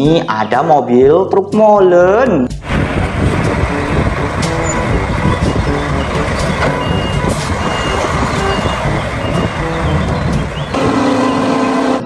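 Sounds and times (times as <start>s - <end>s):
diesel truck engine rumbling: 2.5s - 12.0s.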